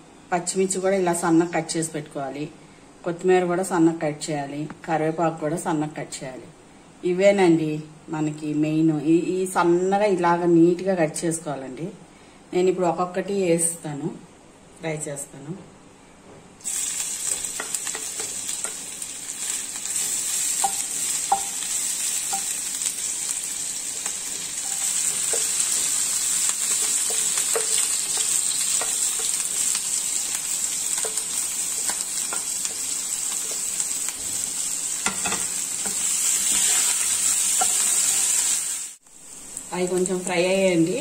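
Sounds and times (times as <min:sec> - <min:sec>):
food sizzling in hot oil: 0:16.6 - 0:41.0.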